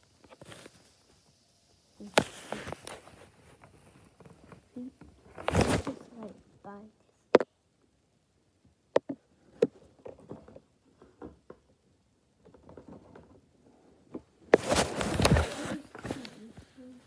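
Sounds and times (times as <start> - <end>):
soft rustling: 0.0 - 7.2, 12.6 - 17.0.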